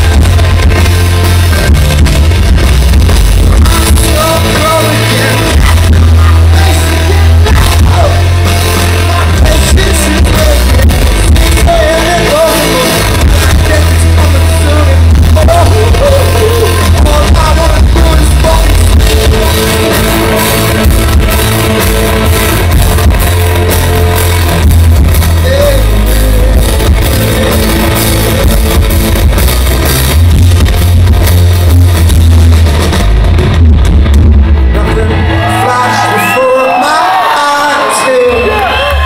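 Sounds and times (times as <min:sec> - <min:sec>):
crowd shouting and whooping: 0:00.0 - 0:28.9, 0:34.3 - 0:39.0
live rock band: 0:00.0 - 0:39.0
singer: 0:03.5 - 0:20.8, 0:25.3 - 0:28.8, 0:34.7 - 0:39.0.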